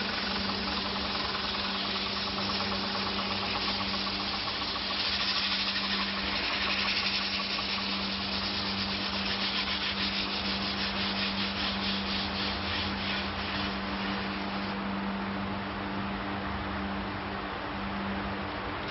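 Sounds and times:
lathe motor humming: 0.0s - 14.9s
sandpaper scratching spinning wood: 0.0s - 14.9s.

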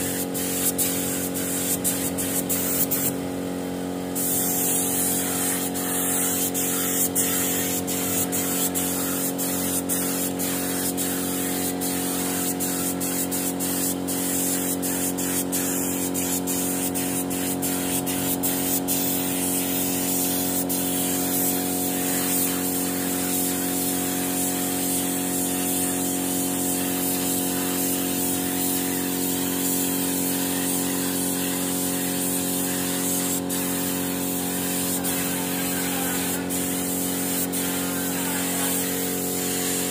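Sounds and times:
air compressor humming: 0.0s - 39.9s
paint spray gun hissing: 0.0s - 39.9s.

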